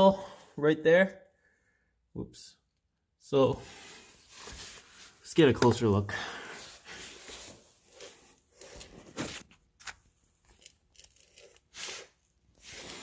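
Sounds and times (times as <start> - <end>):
rustling and scraping scuffs: 4.3 - 5.2, 8.7 - 9.5.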